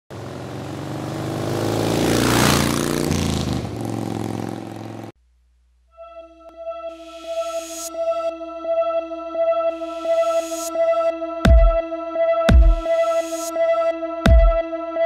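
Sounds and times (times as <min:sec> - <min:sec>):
motorcycle engine revving: 0:00.1 - 0:05.2
electronic music with beat: 0:06.9 - 0:08.4, 0:09.6 - 0:15.0.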